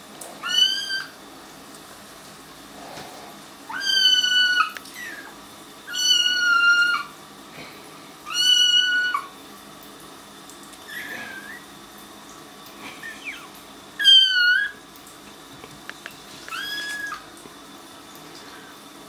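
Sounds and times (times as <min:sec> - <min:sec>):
kittens meowing: 0:00.4 - 0:01.1, 0:03.7 - 0:05.3, 0:05.9 - 0:07.1, 0:08.3 - 0:09.3, 0:13.0 - 0:14.8, 0:16.5 - 0:17.2.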